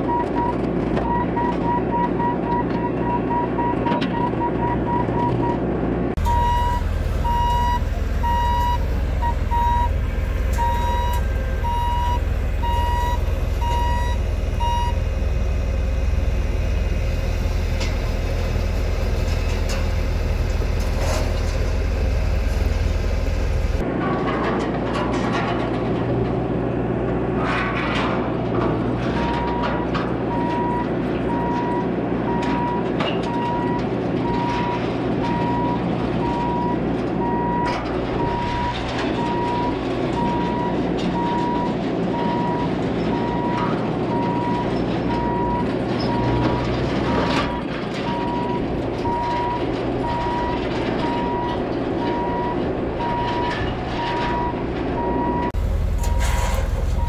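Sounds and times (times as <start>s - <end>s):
diesel engine running: 0.0s - 57.0s
backup alarm beeping: 6.2s - 15.1s.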